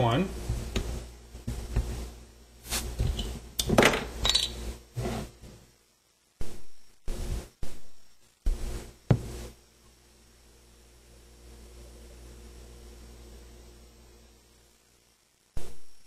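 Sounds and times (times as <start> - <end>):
bottle cap being pried off: 3.6 - 4.6.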